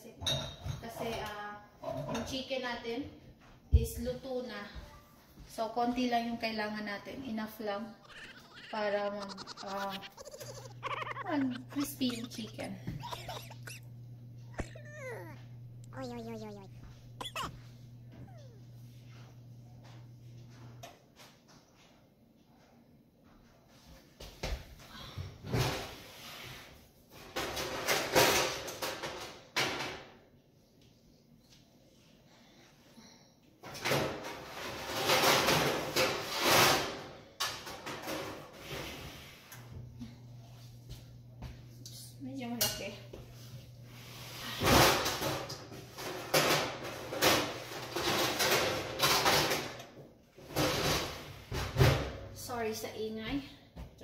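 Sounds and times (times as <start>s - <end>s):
cookware clattering and rattling: 0.2s - 2.4s, 13.0s - 13.8s
cabinets clattering and banging: 44.7s - 49.8s.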